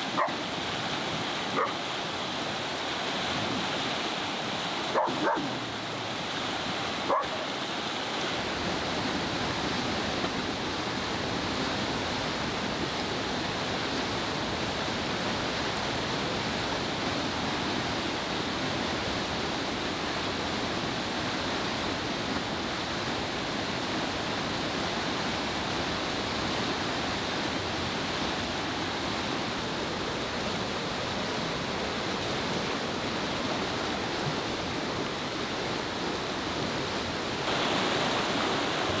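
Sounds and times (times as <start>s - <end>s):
fast river rushing: 0.0s - 39.0s
dog barking: 0.1s - 0.4s, 1.6s - 1.8s, 4.9s - 5.6s, 7.1s - 7.5s.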